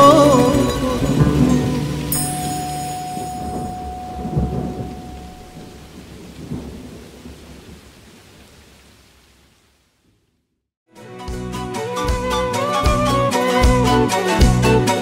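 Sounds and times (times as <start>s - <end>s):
held musical note: 0.0s - 5.9s
rain hiss: 0.0s - 10.3s
thunder rolling: 0.5s - 8.6s.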